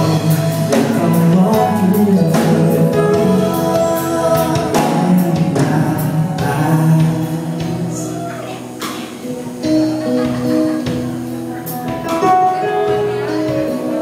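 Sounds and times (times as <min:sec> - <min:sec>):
man singing into a microphone: 0:00.0 - 0:08.8
live band music: 0:00.0 - 0:14.0.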